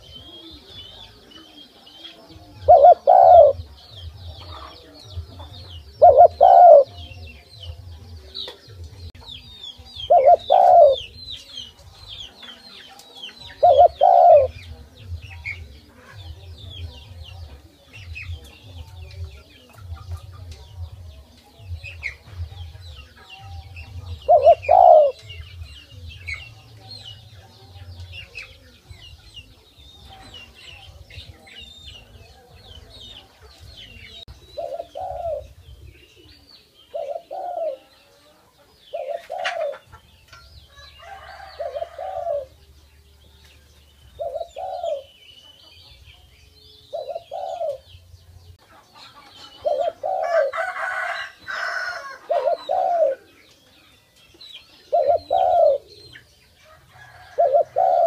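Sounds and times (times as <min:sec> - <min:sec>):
dove cooing: 0:02.3 - 0:04.9, 0:05.8 - 0:07.2, 0:10.1 - 0:11.2, 0:13.5 - 0:14.6, 0:24.0 - 0:25.2, 0:33.9 - 0:38.0, 0:38.9 - 0:39.9, 0:41.1 - 0:42.6, 0:44.2 - 0:45.2, 0:46.9 - 0:47.9, 0:49.4 - 0:50.6, 0:51.6 - 0:53.3, 0:54.9 - 0:56.1, 0:57.0 - 0:58.0.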